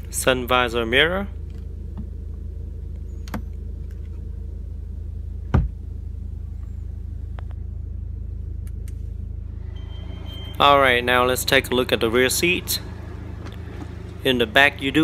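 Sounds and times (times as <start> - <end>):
car engine idling: 0.0 - 15.0
dull thump: 5.5 - 5.8.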